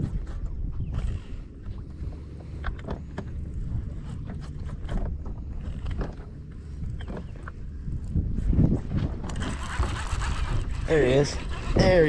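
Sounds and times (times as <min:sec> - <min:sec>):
wind buffeting microphone: 0:00.0 - 0:12.0
waves slapping boat: 0:01.3 - 0:08.1.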